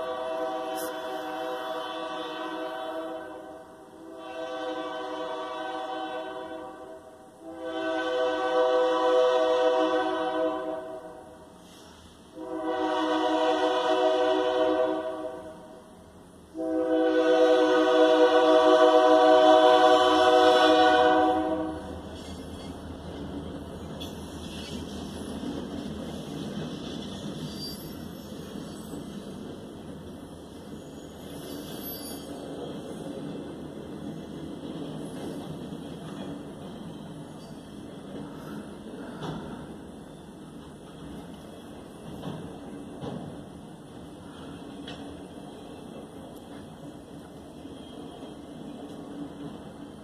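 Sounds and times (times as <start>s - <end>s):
train air horn blasts: 0.0s - 15.8s, 16.5s - 22.1s.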